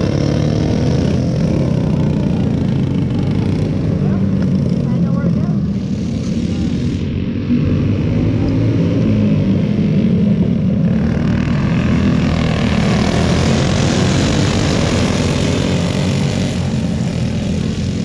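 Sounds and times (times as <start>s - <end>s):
go-kart engines buzzing: 0.0s - 18.0s.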